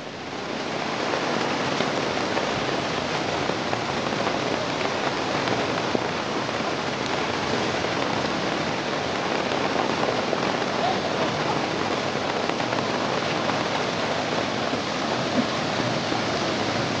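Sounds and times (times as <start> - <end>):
heavy rain on a road: 0.0 - 17.0.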